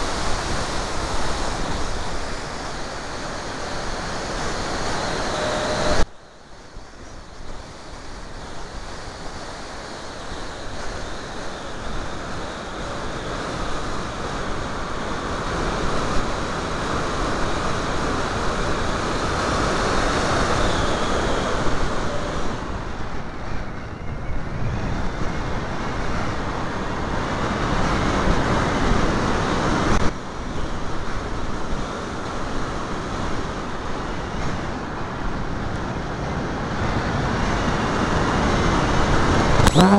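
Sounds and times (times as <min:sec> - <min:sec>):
airflow rushing over microphone: 0:00.0 - 0:06.8, 0:39.4 - 0:39.9.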